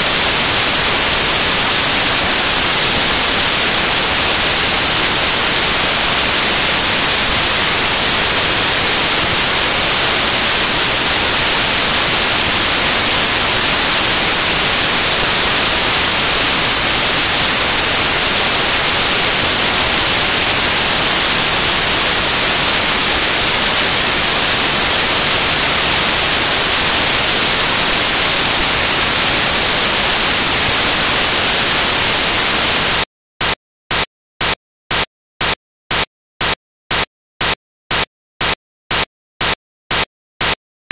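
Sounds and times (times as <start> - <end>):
white-noise static: 0.0 - 33.0.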